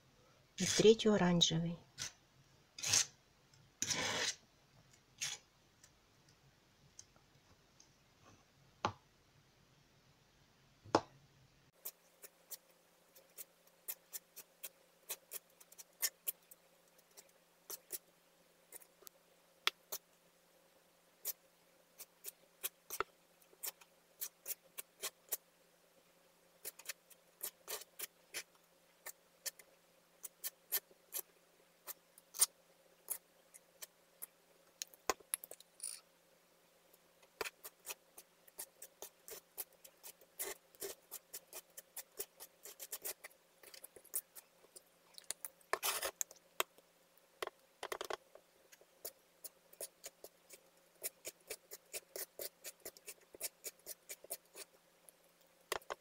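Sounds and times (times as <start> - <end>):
knife scraping on board: 2.8 - 3.2, 3.8 - 4.4.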